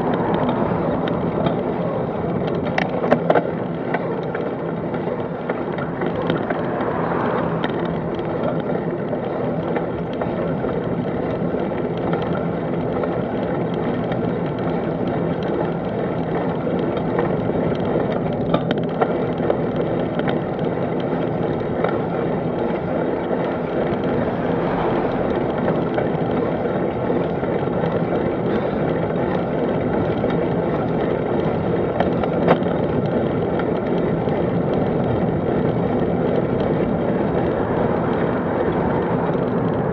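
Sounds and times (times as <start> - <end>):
road noise: 0.0 - 39.9
vehicle hum: 0.0 - 39.9
wind on microphone: 23.6 - 27.3.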